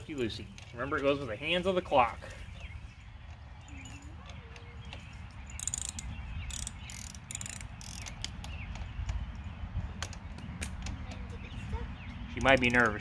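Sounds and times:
socket ratchet clicking: 0:05.5 - 0:08.8.

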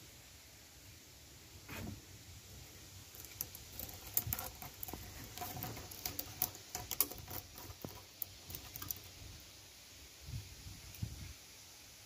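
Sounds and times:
cat scratching wood: 0:03.1 - 0:09.2.

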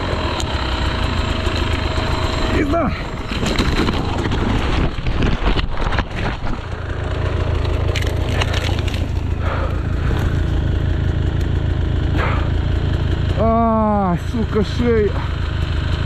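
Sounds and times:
motorbike engine idling: 0:00.0 - 0:05.1, 0:05.9 - 0:16.0
dirt bike crashing through brush: 0:02.5 - 0:06.9, 0:07.6 - 0:09.4
twigs and branches cracking: 0:03.0 - 0:10.6.

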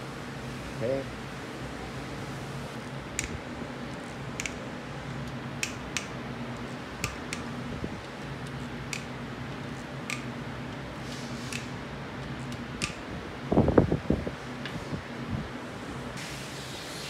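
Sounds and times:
steady fan hum: 0:00.0 - 0:17.0.

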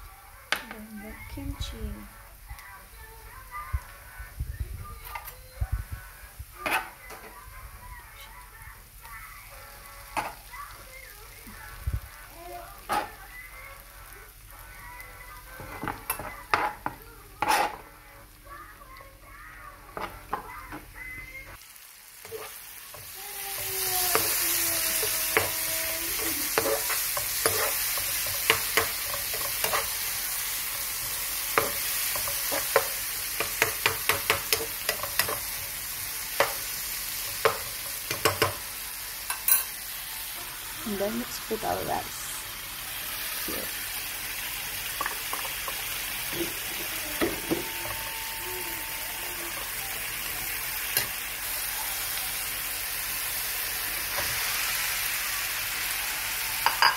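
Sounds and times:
food sizzling in oil: 0:00.0 - 0:56.9
spatula clicking against pan: 0:31.6 - 0:35.4.

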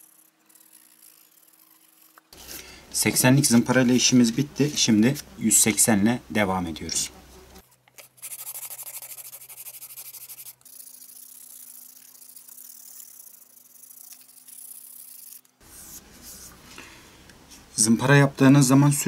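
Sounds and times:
sandpaper scratching: 0:00.0 - 0:06.0, 0:08.0 - 0:16.6.

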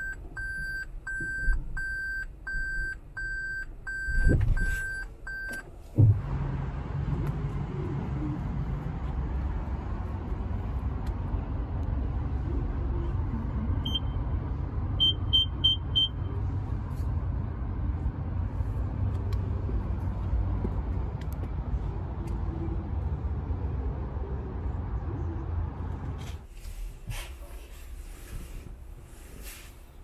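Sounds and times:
short electronic beeps: 0:00.0 - 0:05.6, 0:13.8 - 0:14.2, 0:15.0 - 0:16.3
steady low rumble: 0:05.2 - 0:26.3.

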